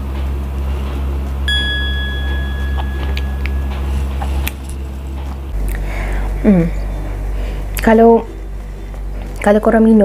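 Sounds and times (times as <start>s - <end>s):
steady low hum: 0.0s - 10.0s
chime ringing tone: 1.5s - 4.5s.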